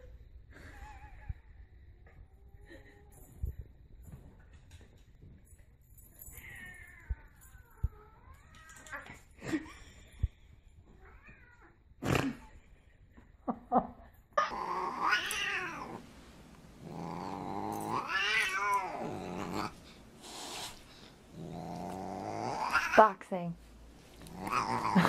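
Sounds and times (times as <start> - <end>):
cat yowling: 14.4 - 16.0, 17.8 - 19.7, 22.4 - 23.0.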